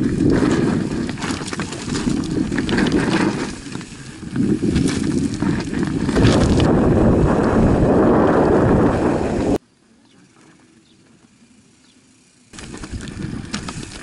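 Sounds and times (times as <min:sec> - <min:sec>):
bike clicks and rattles: 0:00.0 - 0:09.6, 0:10.2 - 0:14.0
bike rolling over stony trail: 0:00.0 - 0:09.6, 0:12.2 - 0:14.0
wind buffeting microphone: 0:00.0 - 0:09.6.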